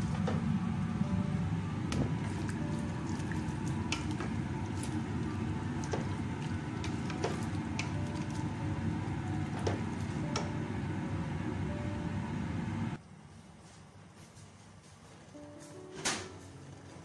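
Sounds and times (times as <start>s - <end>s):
broth boiling in a pot: 0.0s - 13.3s
bubbles bursting: 2.0s - 7.4s.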